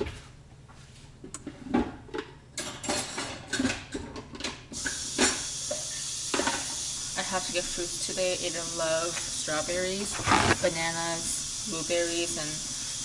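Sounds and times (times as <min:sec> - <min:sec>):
dishes and utensils clattering: 0:01.6 - 0:04.6
tap water running into sink: 0:04.8 - 0:07.2.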